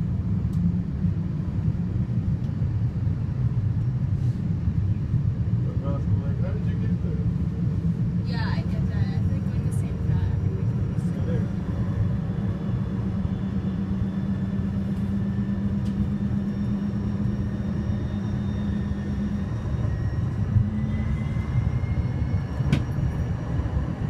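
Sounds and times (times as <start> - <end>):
light-rail car rumble and hum: 0.0 - 24.0
faint rising whine: 9.3 - 24.0.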